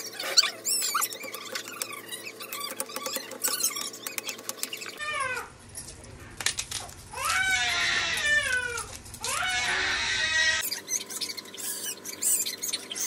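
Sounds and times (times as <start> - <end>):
high falling squeaks: 0.0 - 5.0, 10.6 - 13.0.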